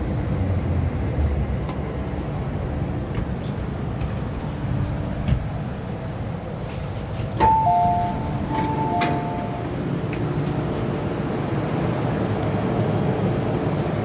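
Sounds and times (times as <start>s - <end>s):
train rumble: 0.0s - 14.0s
two-note electronic chime: 7.4s - 9.7s.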